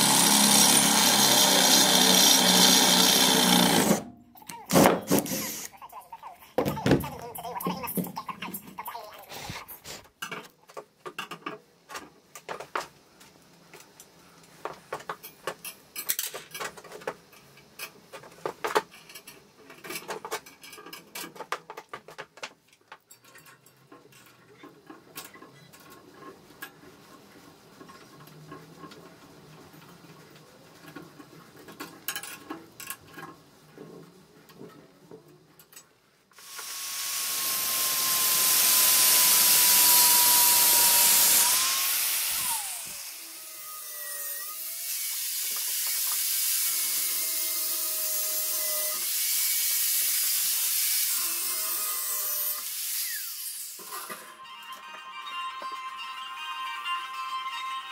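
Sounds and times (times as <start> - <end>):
angle grinder grinding steel: 0.0 - 4.1, 5.1 - 5.7, 36.4 - 55.7.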